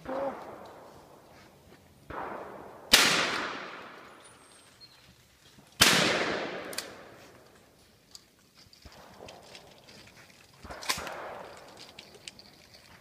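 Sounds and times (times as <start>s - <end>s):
loud sharp bangs echoing: 2.1s - 4.1s, 5.8s - 7.2s.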